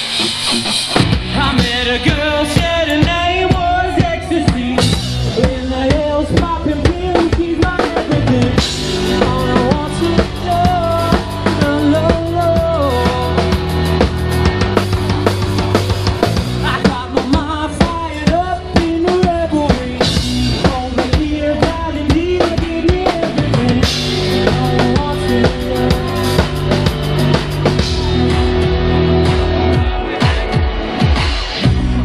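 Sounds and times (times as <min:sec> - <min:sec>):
drum kit beat: 0:00.0 - 0:32.0
live band playing: 0:00.0 - 0:32.0.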